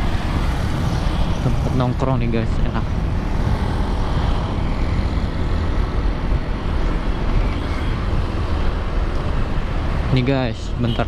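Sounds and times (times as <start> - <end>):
wind rush: 0.0 - 10.2
motorcycle road noise: 0.0 - 11.0.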